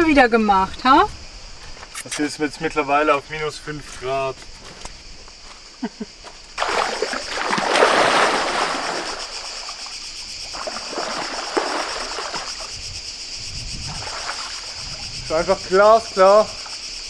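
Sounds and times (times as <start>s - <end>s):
high-pitched insect noise: 0.0s - 17.0s
water splashing: 6.6s - 13.2s, 13.8s - 15.1s.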